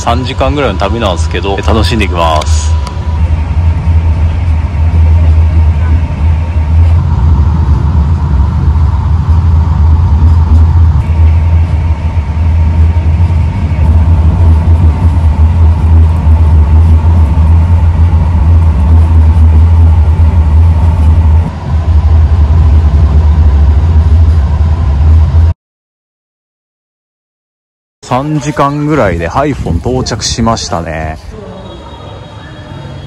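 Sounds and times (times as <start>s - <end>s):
faint steady whine: 0.0s - 25.6s
train rumbling: 0.0s - 25.6s, 28.0s - 33.0s.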